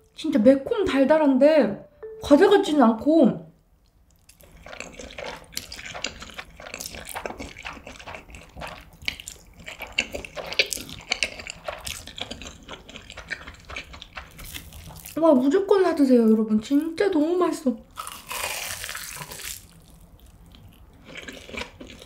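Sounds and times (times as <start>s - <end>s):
wet sticky chewing: 3.8s - 15.2s, 17.9s - 22.0s
noodle slurping: 4.3s - 15.2s.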